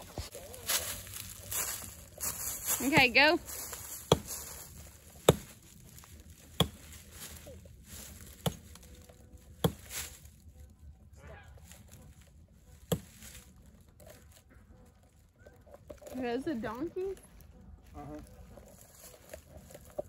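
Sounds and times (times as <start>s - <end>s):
hand tool chopping tree trunk: 2.8s - 5.6s, 6.4s - 7.4s, 8.1s - 8.9s, 9.6s - 10.1s, 12.8s - 13.2s.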